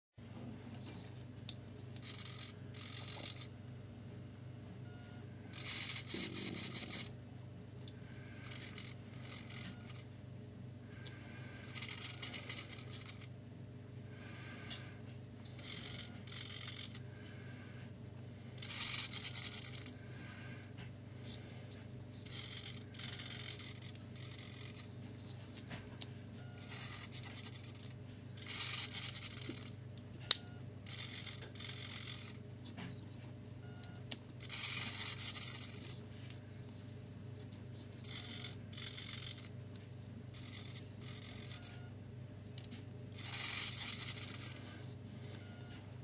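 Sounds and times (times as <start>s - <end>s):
steady low hum: 0.2s - 46.0s
servo motors buzzing: 5.6s - 7.1s, 8.2s - 10.0s.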